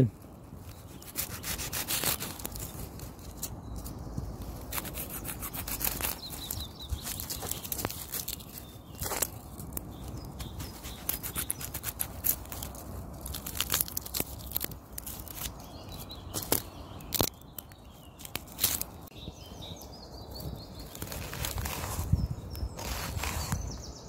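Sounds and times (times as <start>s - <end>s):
onion skin crackling and snapping: 0.8s - 3.6s, 4.6s - 19.1s, 20.4s - 23.6s.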